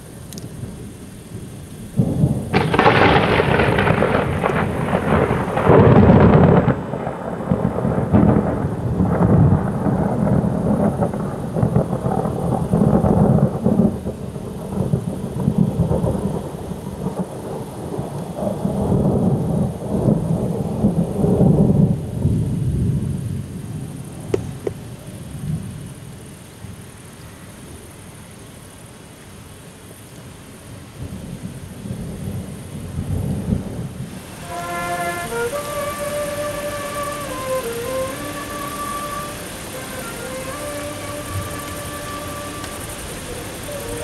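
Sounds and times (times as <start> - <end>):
thunder clap and rolling rumble: 0.0 - 26.1, 31.0 - 44.0.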